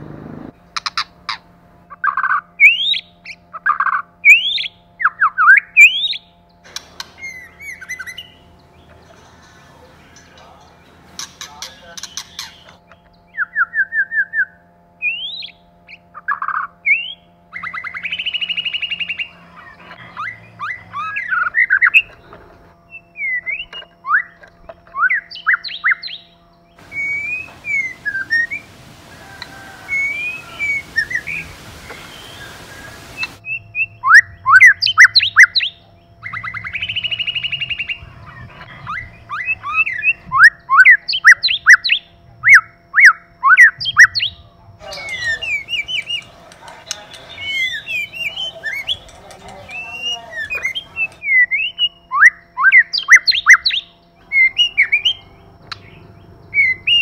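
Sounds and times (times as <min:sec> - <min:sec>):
harsh buzzy bird call: 0:00.0 - 0:57.0
bird singing whistles and chirps: 0:02.6 - 0:03.1, 0:04.2 - 0:06.3, 0:07.0 - 0:08.5, 0:11.2 - 0:15.6, 0:16.8 - 0:19.3, 0:22.9 - 0:24.4, 0:25.0 - 0:38.0, 0:38.8 - 0:57.0.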